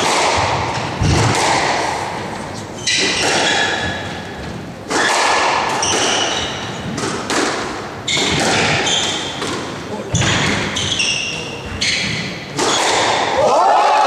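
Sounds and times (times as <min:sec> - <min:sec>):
squash ball hitting racquets and walls: 0:00.0 - 0:13.6
sneaker squeaks on wooden floor: 0:02.5 - 0:07.0, 0:08.0 - 0:09.5, 0:10.1 - 0:13.0.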